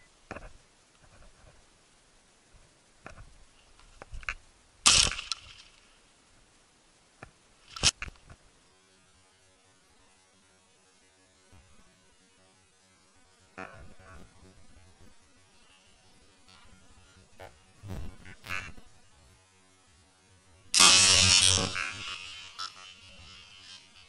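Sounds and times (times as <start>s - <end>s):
sharp cracks and crackling: 2.9s - 6.5s, 7.1s - 8.5s, 11.0s - 24.0s.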